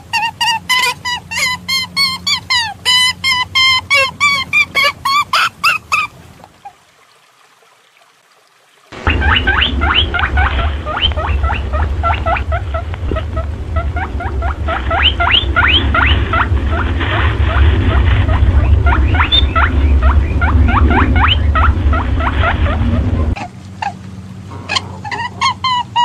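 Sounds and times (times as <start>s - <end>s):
low hum: 9.0s - 24.7s.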